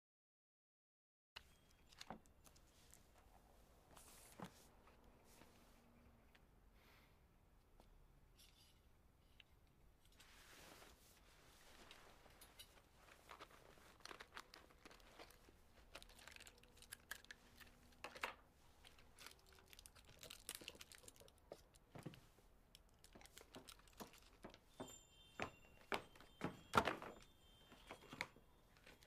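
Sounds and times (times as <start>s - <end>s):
paper crinkling and clicks: 12.6s - 24.7s, 25.4s - 29.0s.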